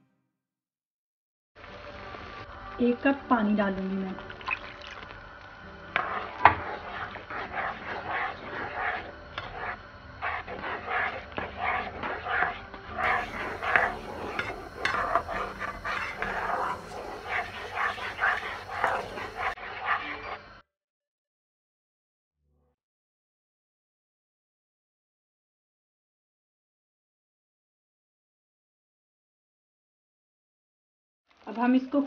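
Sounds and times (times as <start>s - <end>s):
spatula stirring gravy in pan: 4.2s - 20.4s.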